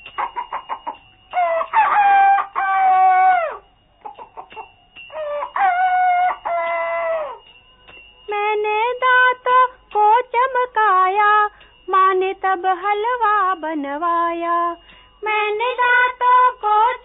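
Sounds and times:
rooster clucking: 0.1 - 7.4
rooster crowing: 0.1 - 7.5.

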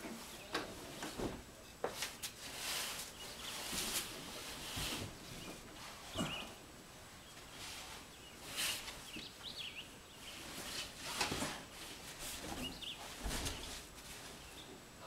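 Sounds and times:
faint bird chirps: 5.4 - 6.6.

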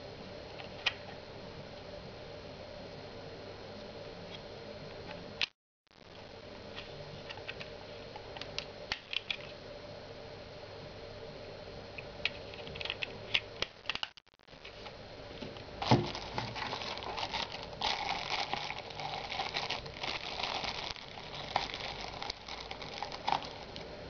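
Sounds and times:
plastic packaging crinkling: 15.8 - 23.9.

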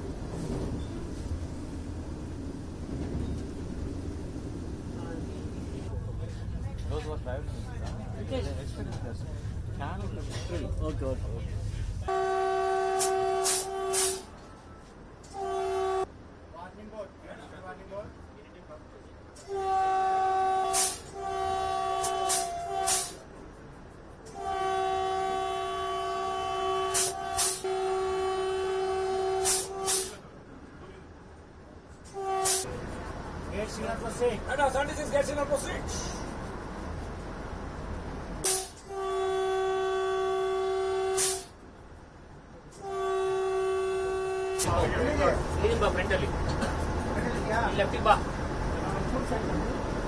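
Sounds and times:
train running noise: 0.0 - 50.0
train horn blast: 12.0 - 14.4, 15.2 - 16.1, 19.4 - 23.2, 24.3 - 30.2, 32.0 - 32.7, 38.4 - 41.6, 42.7 - 45.2
short sharp noise bursts: 38.4 - 38.8.

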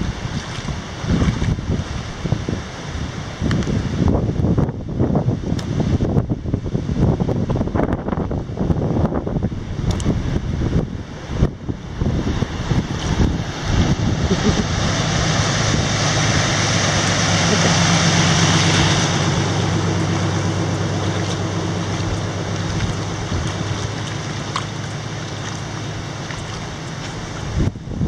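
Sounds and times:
floodwater rushing and churning: 0.0 - 28.0
wind buffeting on microphone: 0.0 - 28.0
steady low hum: 7.6 - 28.0.

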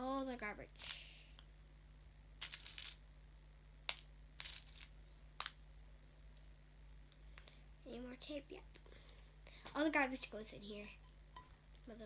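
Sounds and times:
sticky tape crinkling and clicking: 2.4 - 3.0, 3.8 - 5.6.

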